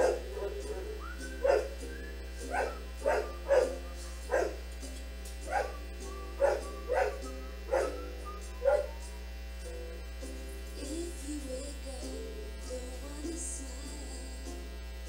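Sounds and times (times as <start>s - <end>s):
dog barking: 0.0s - 1.8s, 2.5s - 4.6s, 5.5s - 5.8s, 6.4s - 9.0s.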